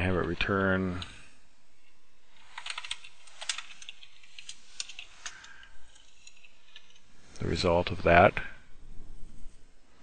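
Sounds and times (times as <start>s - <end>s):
computer keyboard typing: 2.4s - 7.0s.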